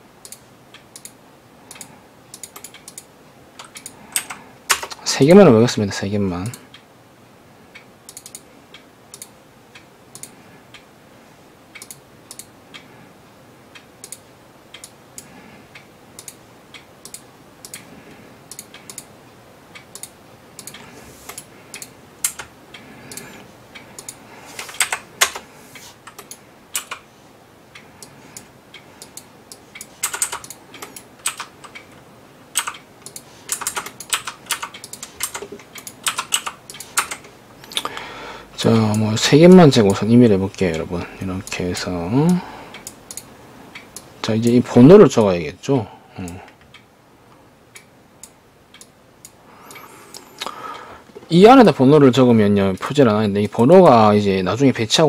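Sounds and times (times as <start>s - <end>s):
mouse and keyboard clicks: 29.8s - 31.8s, 32.6s - 37.9s.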